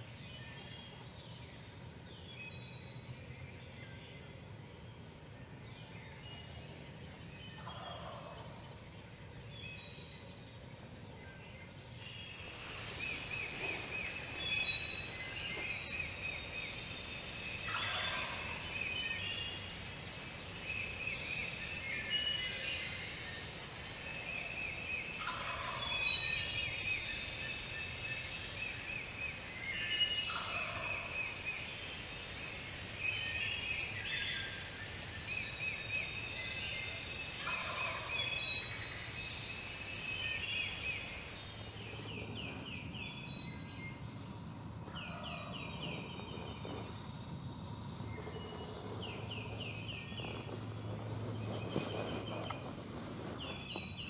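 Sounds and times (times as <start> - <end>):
songbirds singing: 0.0 - 54.0
turkey gobbling: 17.7 - 18.2.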